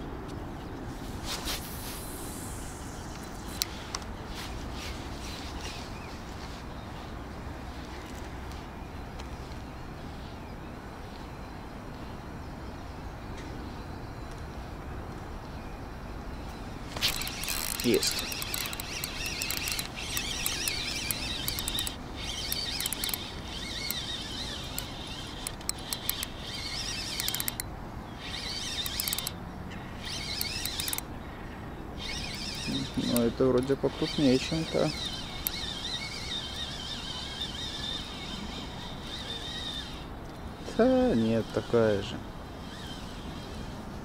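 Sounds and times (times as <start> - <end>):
fishing reel gears whirring: 16.9 - 29.4, 30.0 - 31.1, 32.0 - 43.8.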